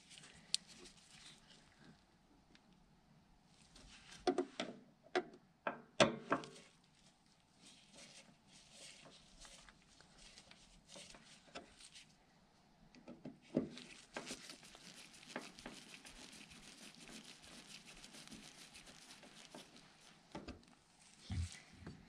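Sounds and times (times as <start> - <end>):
faint scraping and rubbing: 0.0 - 2.1, 3.5 - 4.2, 6.4 - 12.2, 13.5 - 22.0.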